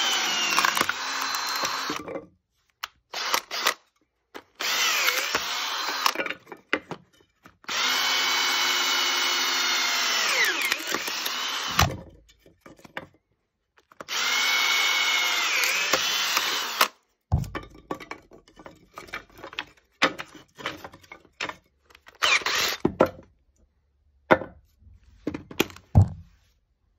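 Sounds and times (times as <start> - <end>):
cordless drill motor whining: 0.0 - 2.0, 3.1 - 3.8, 4.6 - 6.2, 7.7 - 11.9, 14.1 - 17.0, 22.1 - 22.9
wood splitting: 7.6 - 13.1
knocks and clatter: 17.3 - 21.7.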